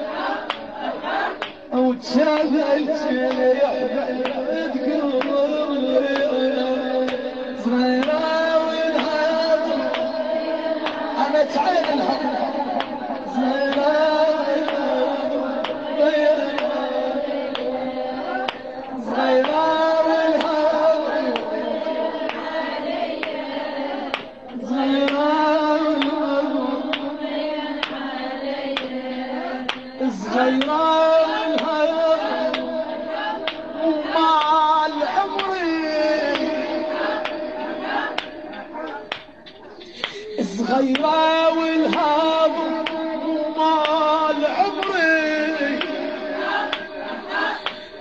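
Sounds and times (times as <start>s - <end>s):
woman singing a lament: 0.0s - 38.4s.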